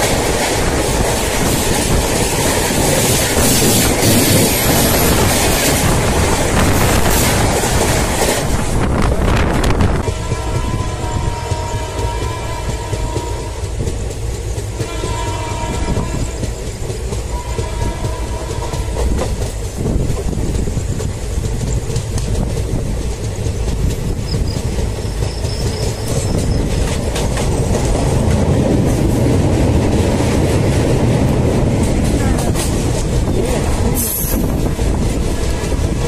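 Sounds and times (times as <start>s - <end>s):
wheel clickety-clack: 0.0s - 8.8s, 11.4s - 36.0s
train rumbling over rails: 0.0s - 36.0s
train horn blasts: 9.9s - 13.7s, 14.7s - 16.5s, 17.3s - 19.2s.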